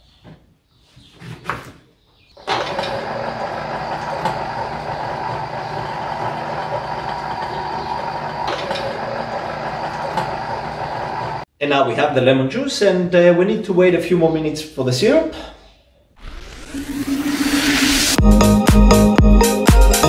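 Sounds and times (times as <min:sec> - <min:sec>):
electric citrus juicer motor: 0:02.4 - 0:11.4.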